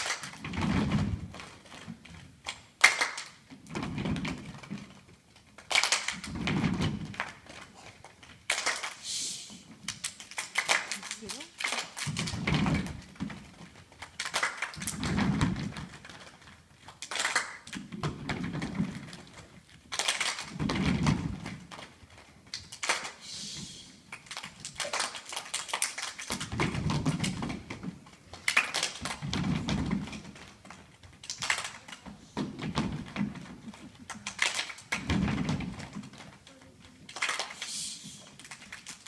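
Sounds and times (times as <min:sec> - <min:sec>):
children clapping: 0:00.0 - 0:00.4, 0:02.4 - 0:03.5, 0:05.6 - 0:06.4, 0:08.4 - 0:09.0, 0:09.9 - 0:13.0, 0:13.9 - 0:15.1, 0:16.9 - 0:17.8, 0:19.9 - 0:20.6, 0:22.5 - 0:23.2, 0:24.1 - 0:27.5, 0:28.3 - 0:29.3, 0:31.2 - 0:32.2, 0:32.8 - 0:36.3, 0:37.0 - 0:39.0.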